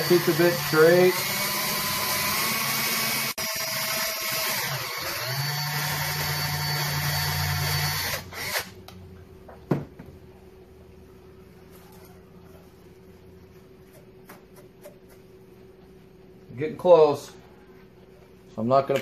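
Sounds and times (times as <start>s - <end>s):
cordless drill boring metal: 0.0s - 8.8s.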